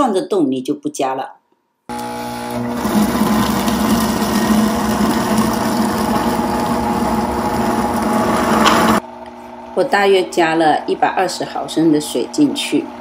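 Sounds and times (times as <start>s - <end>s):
blender motor running: 1.9s - 9.0s.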